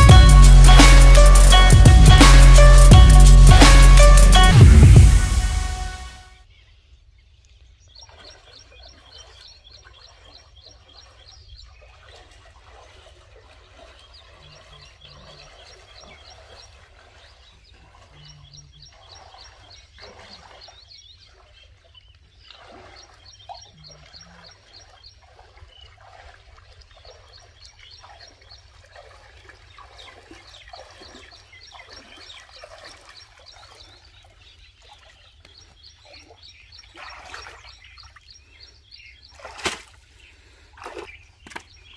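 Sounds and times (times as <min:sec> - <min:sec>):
water splashing from wading: 0:07.9 - 0:41.9.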